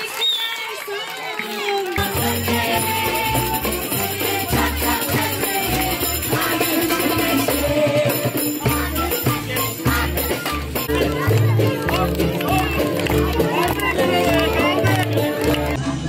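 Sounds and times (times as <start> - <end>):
steady beat: 2.0 - 15.8
flute melody: 8.6 - 15.4
bass line: 8.6 - 16.0.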